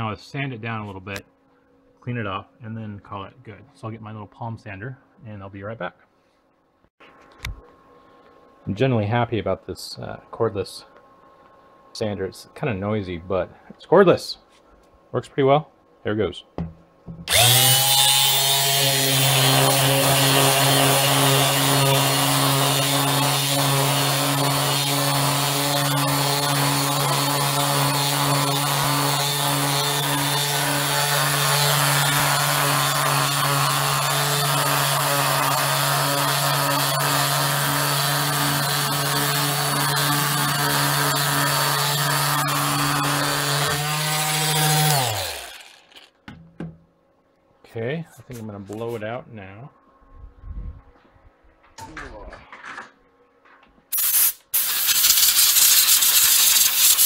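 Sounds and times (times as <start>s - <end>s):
palm sander on wood: 17.3s - 46.1s, 54.6s - 57.0s.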